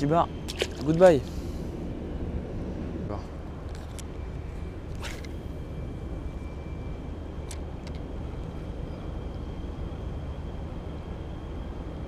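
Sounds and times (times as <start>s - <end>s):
low rumble of outdoor air: 0.0s - 12.0s
fishing reel whine: 4.0s - 7.9s.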